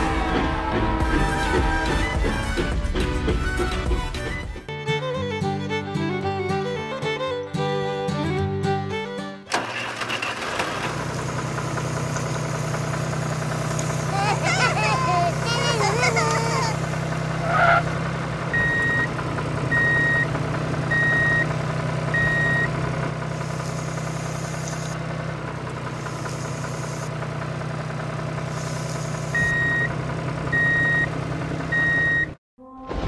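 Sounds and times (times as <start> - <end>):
bulldozer engine drone: 5.0 - 32.4
high reversing beep: 18.6 - 19.1, 19.7 - 20.3, 20.9 - 21.5, 22.1 - 22.7, 29.3 - 29.9, 30.5 - 31.1, 31.7 - 32.4.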